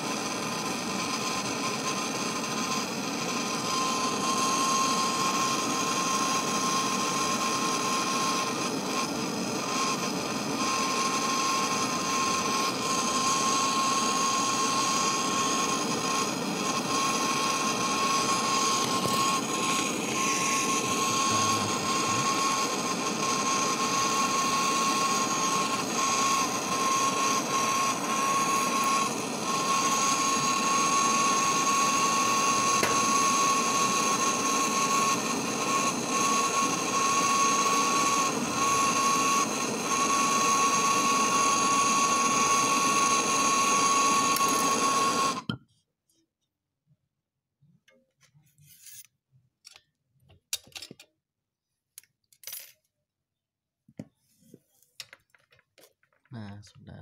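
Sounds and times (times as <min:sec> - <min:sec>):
torch flame hissing: 0:00.0 - 0:45.5
steady high whistle: 0:00.0 - 0:45.6.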